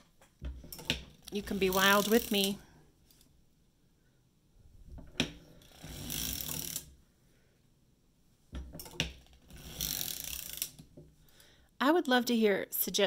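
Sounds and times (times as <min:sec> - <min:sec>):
sock machine needles clattering: 0:00.6 - 0:02.6.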